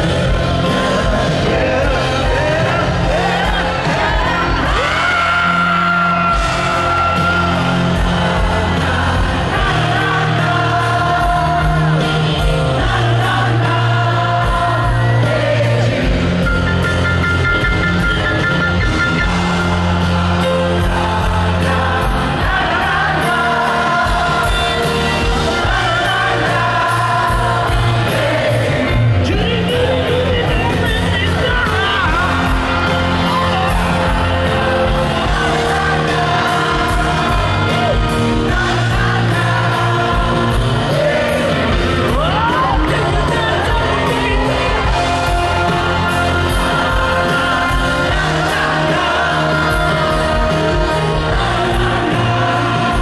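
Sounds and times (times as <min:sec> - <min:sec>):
crowd singing along: 0:00.0 - 0:53.0
live rock band with piano: 0:00.0 - 0:53.0
person singing: 0:19.1 - 0:53.0.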